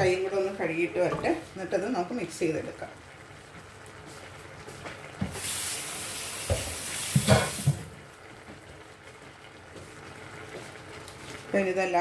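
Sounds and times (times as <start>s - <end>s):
tap water running into sink: 5.2s - 8.0s.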